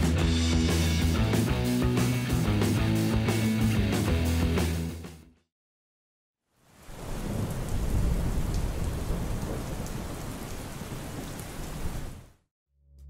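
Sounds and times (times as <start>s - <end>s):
heavy rain: 6.5s - 12.4s
low thunder rumble: 6.9s - 12.1s.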